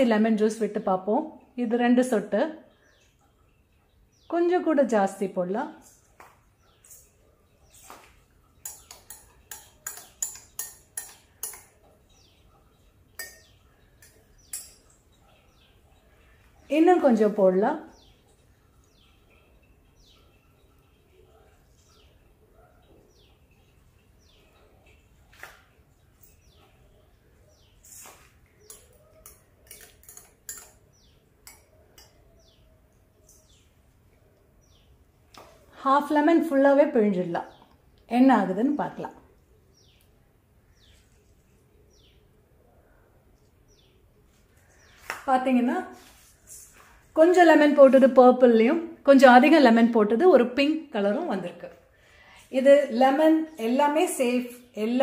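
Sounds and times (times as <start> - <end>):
bird chirping: 2.6 - 4.7, 5.8 - 45.1
spoon clinking against glass: 8.6 - 11.8, 13.1 - 15.0, 28.6 - 32.2.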